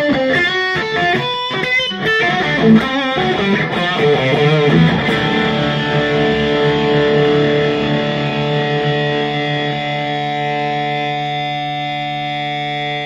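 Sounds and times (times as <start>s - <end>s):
distorted electric guitar note: 3.6s - 13.0s.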